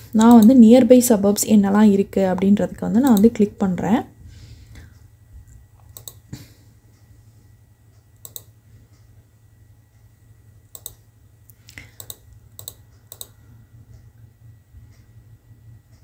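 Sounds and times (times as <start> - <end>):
faint low hum: 0.0 - 16.0
computer mouse clicking: 0.2 - 0.6, 2.4 - 3.4, 5.8 - 6.3, 8.2 - 8.6, 10.7 - 11.0, 11.8 - 13.4.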